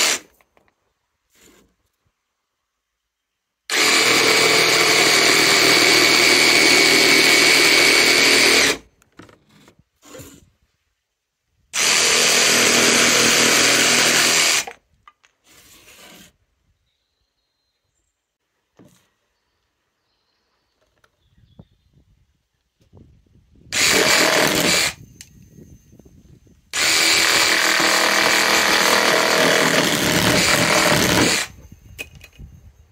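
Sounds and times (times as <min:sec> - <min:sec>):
jigsaw sawing through wood: 0:00.0 - 0:00.3, 0:03.7 - 0:08.8, 0:11.8 - 0:14.8, 0:23.7 - 0:25.0, 0:26.8 - 0:31.6.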